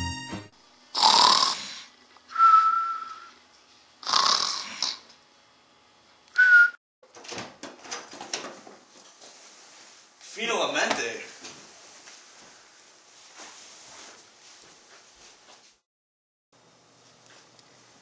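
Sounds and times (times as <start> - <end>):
comic snore: 1.0 - 1.9, 4.0 - 5.1
whistled note: 2.3 - 3.3, 6.4 - 6.8.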